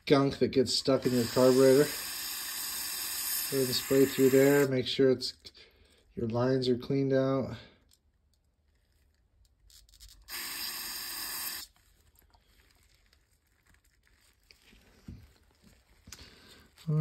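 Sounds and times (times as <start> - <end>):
aerosol spray hissing: 0.8 - 4.7, 10.3 - 11.7.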